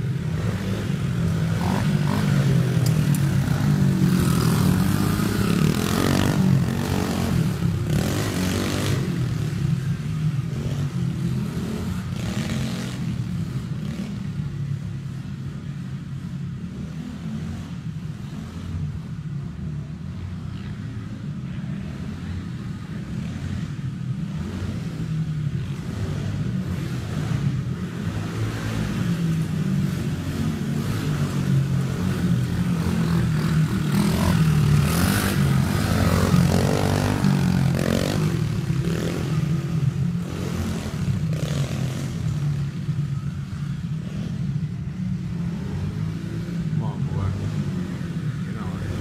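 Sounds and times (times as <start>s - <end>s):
dirt bike engine revving: 0.0s - 14.1s, 25.6s - 42.8s, 43.6s - 49.0s.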